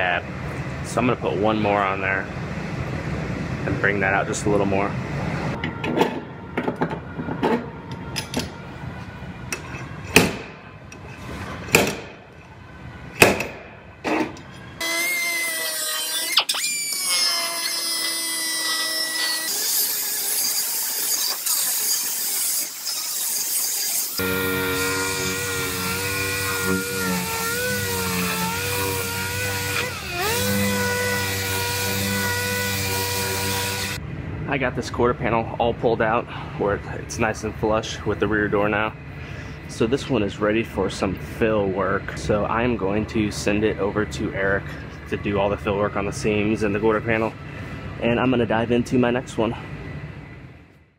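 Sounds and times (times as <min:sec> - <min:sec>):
air sander whining on steel: 0:14.8 - 0:34.0
grinder running: 0:14.8 - 0:34.0.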